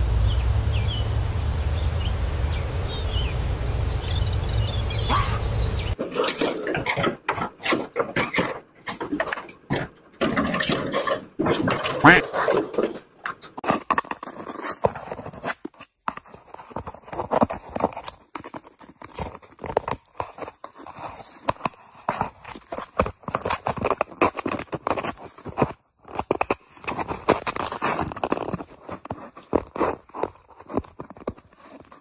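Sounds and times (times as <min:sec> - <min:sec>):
cat chewing and tearing paper: 0:13.6 - 0:32.0.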